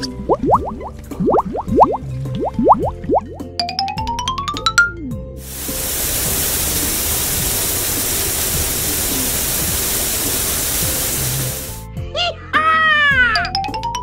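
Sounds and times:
light background music: 0.0 - 14.0
cartoon water spray hiss: 5.4 - 11.8.

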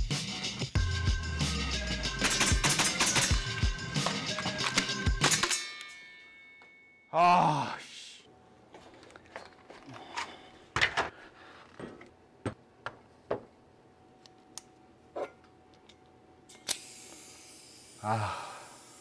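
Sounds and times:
gas hissing into magazine: 16.5 - 19.0.

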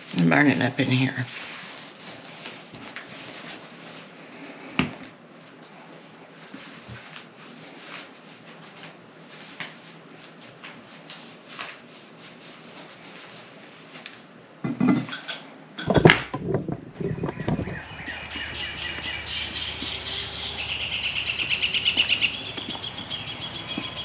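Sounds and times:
phone knocks and bumps: 15.8 - 17.8
phone and clothing rustling: 15.8 - 20.6.

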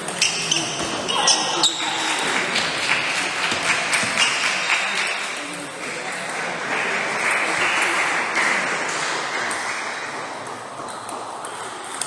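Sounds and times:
spectators applauding: 1.7 - 10.0.

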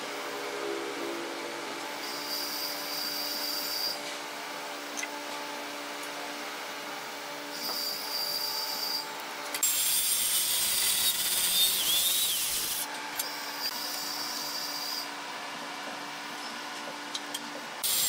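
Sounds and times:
circular saw whining: 7.4 - 15.2
saw cutting through wood: 9.6 - 15.0.

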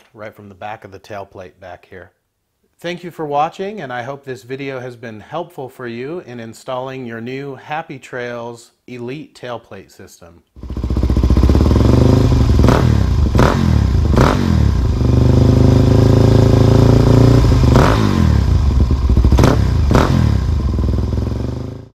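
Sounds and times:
motorcycle engine running: 10.6 - 21.9.

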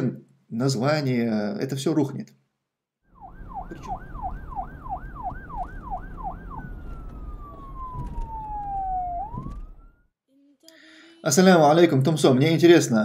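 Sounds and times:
electronic police siren: 3.1 - 10.1.

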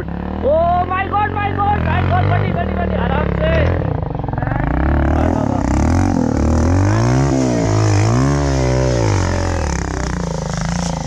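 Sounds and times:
motorcycle engine revving: 0.0 - 11.0.

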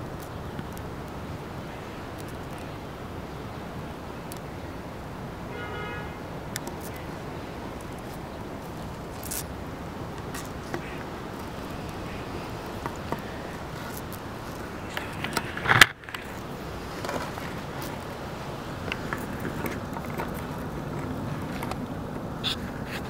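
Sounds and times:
outdoor background noise: 0.0 - 23.0
faint clicks: 0.1 - 1.2, 4.2 - 4.5, 6.5 - 7.1.

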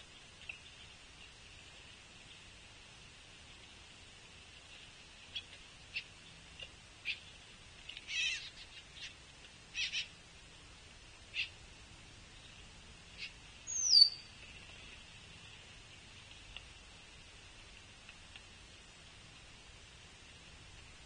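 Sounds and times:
young woodpecker hoarse begging calls: 8.0 - 10.2.

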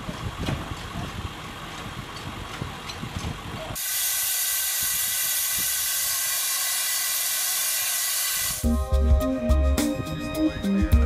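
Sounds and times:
loud steady hiss: 3.8 - 8.7.

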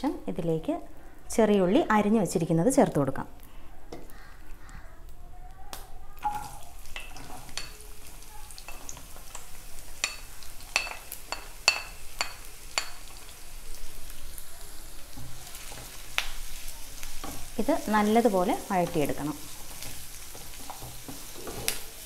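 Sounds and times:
shallots sizzling in oil: 6.2 - 22.0.

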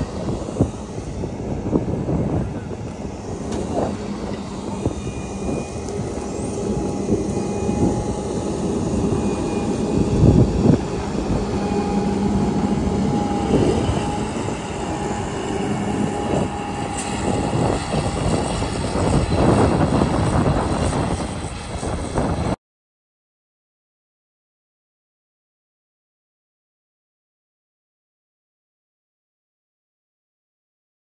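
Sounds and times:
combine harvester drone: 0.0 - 22.6.

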